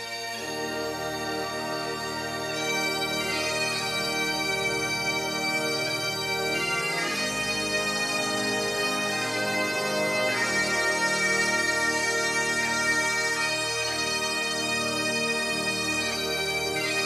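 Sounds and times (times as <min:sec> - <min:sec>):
bagpipe drone: 0:00.0 - 0:17.0
bagpipe melody: 0:00.0 - 0:17.0.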